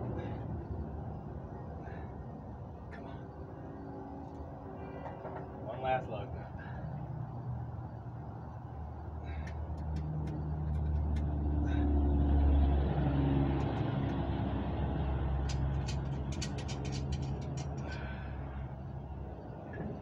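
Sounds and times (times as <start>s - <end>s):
vehicle engine running: 6.6s - 20.0s.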